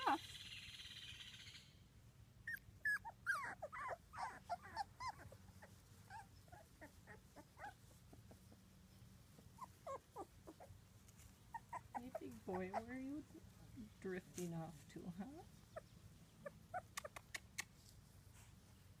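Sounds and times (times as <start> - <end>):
puppies squeaking and whimpering: 2.5 - 8.6, 9.5 - 13.2, 15.6 - 17.6.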